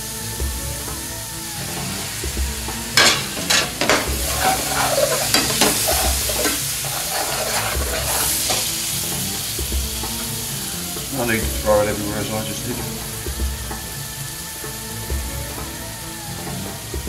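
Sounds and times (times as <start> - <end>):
curry sizzling in frying pan: 0.0 - 17.0
spoon scraping and knocking pan: 2.9 - 9.2.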